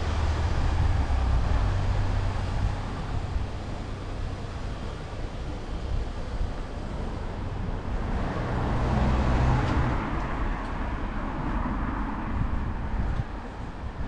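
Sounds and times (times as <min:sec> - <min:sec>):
car passing by: 0:07.3 - 0:13.4.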